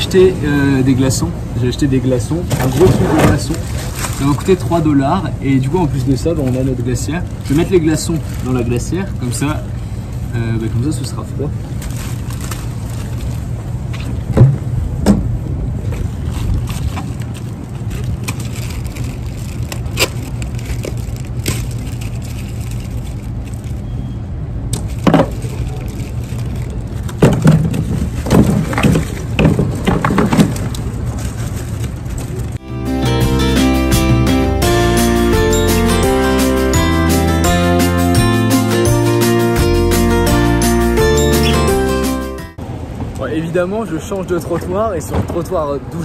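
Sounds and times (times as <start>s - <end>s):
street traffic noise: 0.0s - 46.0s
ice cubes rattling in plastic bag: 3.4s - 4.7s, 11.8s - 13.4s, 16.6s - 23.8s, 24.8s - 29.2s.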